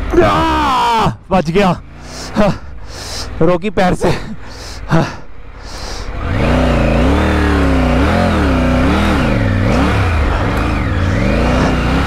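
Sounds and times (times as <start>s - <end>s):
motorcycle engine revving: 1.7s - 2.8s, 5.4s - 12.0s.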